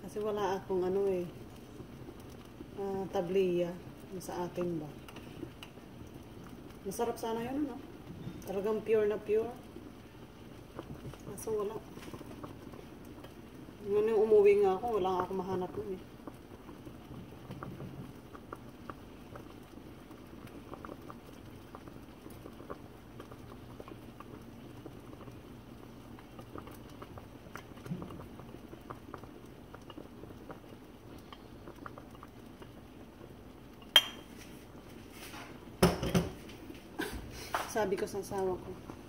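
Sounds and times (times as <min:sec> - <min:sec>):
porridge bubbling in a pot: 0:00.0 - 0:39.0
small clicks and pops: 0:00.9 - 0:02.8, 0:03.9 - 0:06.8, 0:09.5 - 0:13.8, 0:15.1 - 0:33.9.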